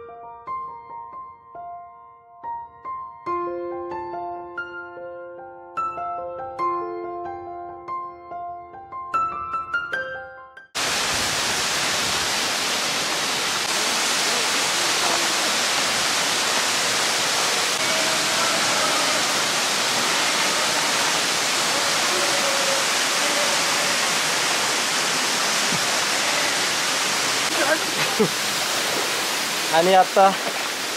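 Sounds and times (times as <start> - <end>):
piano music: 0.0 - 10.8, 17.5 - 30.4
waterfall pouring into pool: 10.8 - 30.9.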